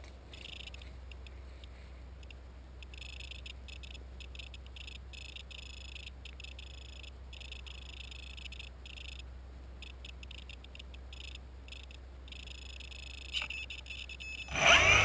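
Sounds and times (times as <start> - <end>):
steady low hum: 0.0 - 15.0
electrical interference buzz: 14.5 - 15.0.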